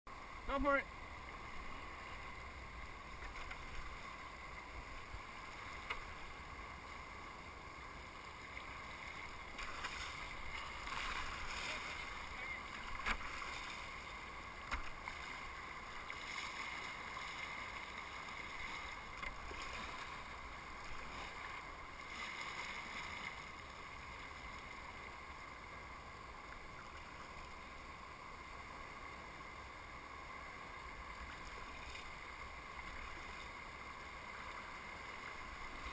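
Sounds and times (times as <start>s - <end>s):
knocks and splashes: 9.5s - 12.0s, 12.8s - 13.9s, 14.6s - 15.4s.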